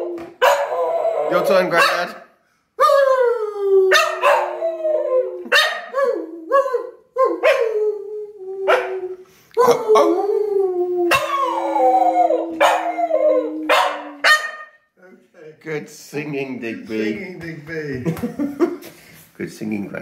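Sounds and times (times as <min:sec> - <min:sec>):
dog howling and yelping: 0:00.0 - 0:01.9, 0:02.8 - 0:14.6
man howling: 0:02.8 - 0:14.2.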